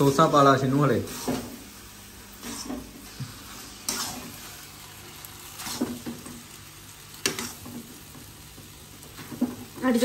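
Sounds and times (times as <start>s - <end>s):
noodles sizzling: 0.0s - 10.0s
metal spatula scraping pan: 3.6s - 4.5s.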